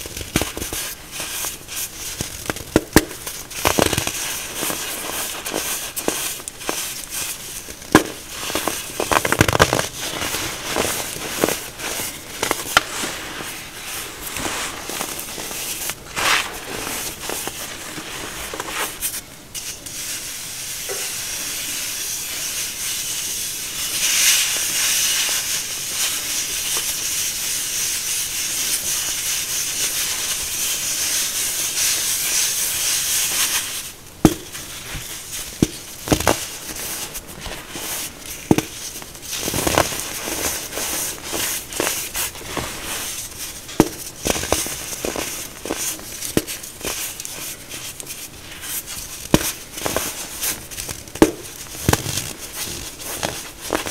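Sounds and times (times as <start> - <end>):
baking soda block cracking: 0.0 - 13.1, 32.0 - 53.9
baking soda crunching by hand: 0.0 - 19.2, 29.8 - 53.9.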